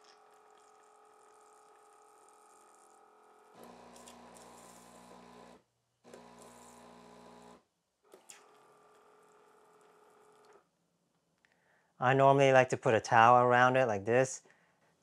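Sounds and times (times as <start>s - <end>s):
espresso machine pump buzzing: 0.0s - 7.6s, 8.4s - 10.6s.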